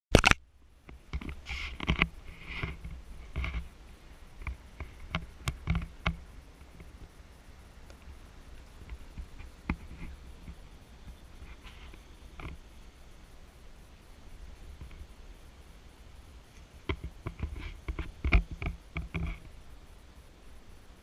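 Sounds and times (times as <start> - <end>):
sharp click: 0.1 - 0.4.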